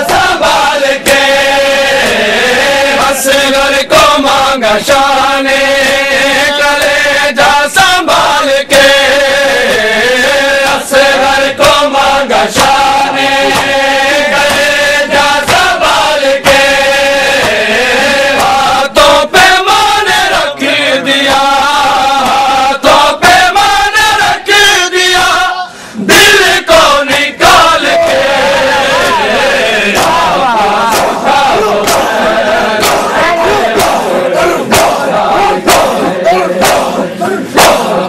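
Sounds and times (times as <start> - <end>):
hands slapping chests: 0.0 - 5.0, 5.8 - 9.0, 10.6 - 20.4, 21.2 - 22.5, 27.1 - 38.0
crowd shouting: 0.0 - 38.0
men chanting in unison: 0.0 - 38.0.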